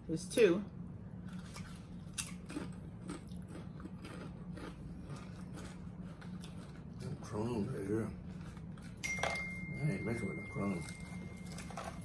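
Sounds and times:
person crunching chips: 0:01.2 - 0:09.0, 0:10.7 - 0:12.0.

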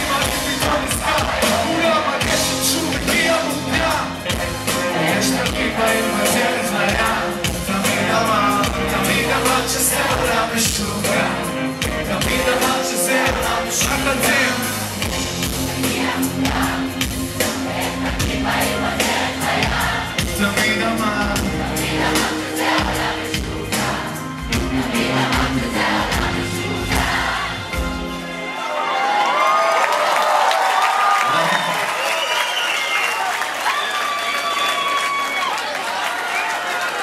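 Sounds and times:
hip-hop beat and bass over loudspeakers: 0:00.0 - 0:27.3
sung vocals: 0:00.0 - 0:27.7
crowd singing and cheering: 0:00.0 - 0:37.0.

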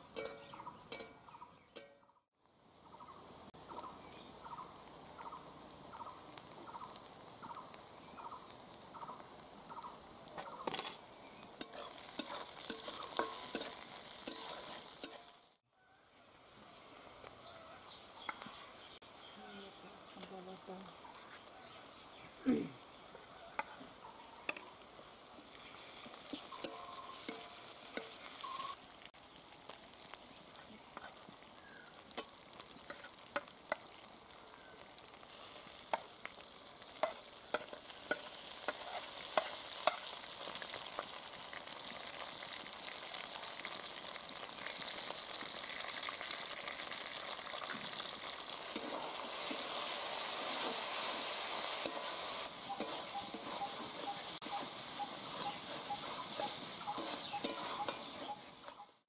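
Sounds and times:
onions sizzling in oil: 0:00.0 - 0:59.0
spatula scraping metal pan: 0:11.6 - 0:15.3, 0:32.2 - 0:33.5, 0:37.0 - 0:40.1, 0:48.7 - 0:59.0.

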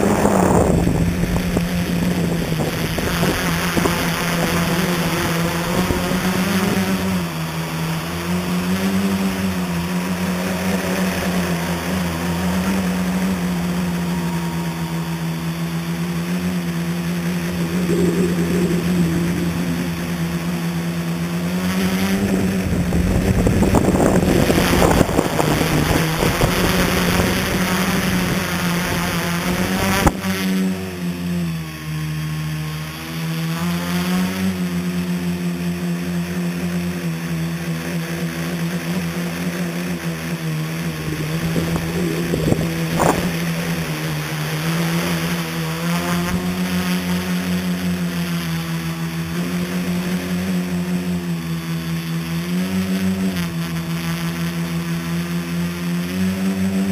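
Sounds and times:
drone propellers whirring: 0:00.0 - 0:56.9
rushing noise: 0:10.8 - 0:23.0.

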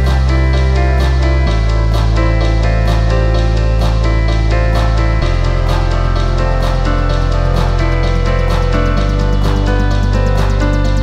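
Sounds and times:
background music with bass: 0:00.0 - 0:11.0.

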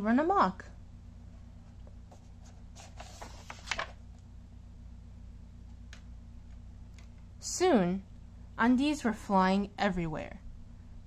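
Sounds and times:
steady low hum: 0:00.0 - 0:11.0
book page turning: 0:02.1 - 0:04.0.

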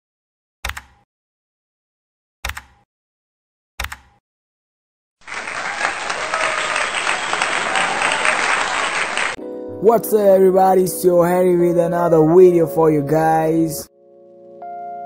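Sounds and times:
crowd applause and cheering: 0:05.2 - 0:09.4.

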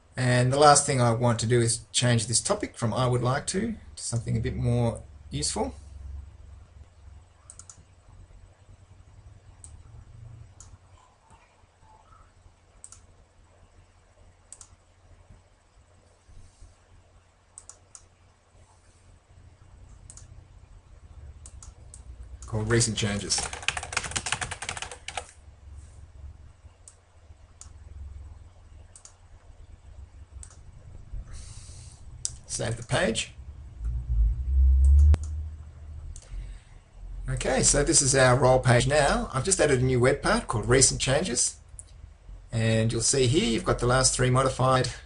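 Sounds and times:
low steady hum: 0:00.0 - 0:45.0
computer mouse clicks: 0:07.4 - 0:07.9, 0:12.8 - 0:13.1, 0:14.5 - 0:14.8, 0:17.6 - 0:18.1, 0:19.9 - 0:20.3, 0:21.4 - 0:22.5, 0:28.9 - 0:29.2, 0:30.4 - 0:30.6.

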